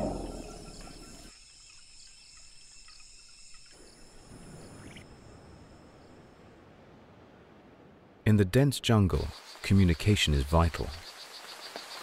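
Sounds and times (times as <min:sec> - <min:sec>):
deep animal call: 0:00.0 - 0:01.3
faint ticks: 0:00.0 - 0:04.3
high-pitched insect drone: 0:00.0 - 0:06.1.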